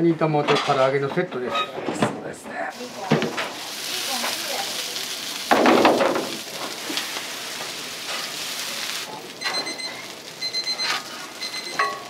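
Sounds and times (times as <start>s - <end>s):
dumplings sizzling on a griddle: 2.7s - 12.0s
metal spatula scraping griddle: 6.5s - 10.1s, 10.7s - 12.0s
high electronic beeping: 9.4s - 11.9s.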